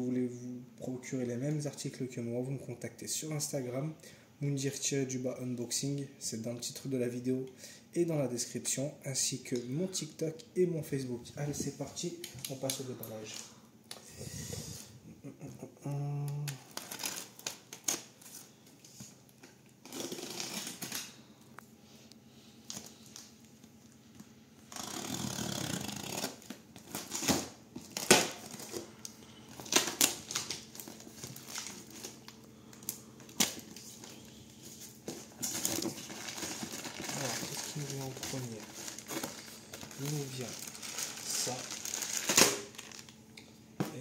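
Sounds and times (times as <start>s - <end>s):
blade slitting packing tape: 19.8s - 21.1s, 24.7s - 28.4s
plastic crinkling: 24.7s - 43.2s.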